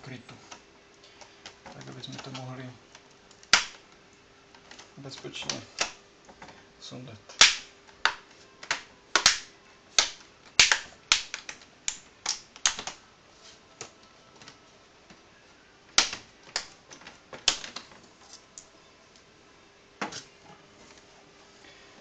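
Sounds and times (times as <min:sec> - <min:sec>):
plastic clips snapping loose: 0:07.4 - 0:13.0, 0:16.0 - 0:18.0.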